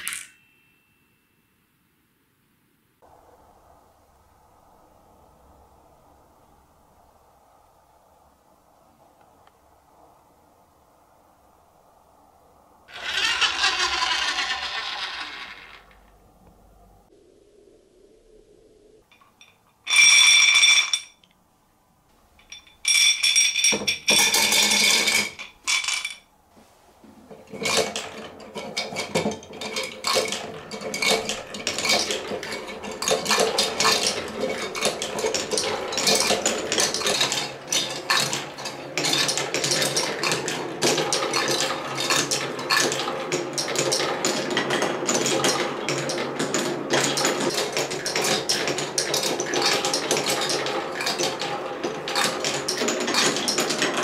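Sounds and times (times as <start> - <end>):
marbles rolling through marble run: 0.0 - 0.4, 12.9 - 16.1, 19.4 - 21.2, 22.9 - 26.2, 27.5 - 54.0
loud rattling bursts: 12.9 - 16.0.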